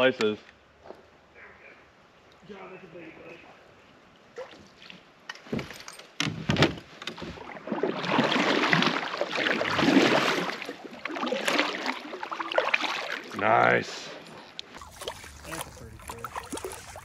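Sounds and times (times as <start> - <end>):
paddle strokes splashing: 7.2 - 13.4, 14.1 - 17.0
water rushing along kayak: 7.2 - 17.0.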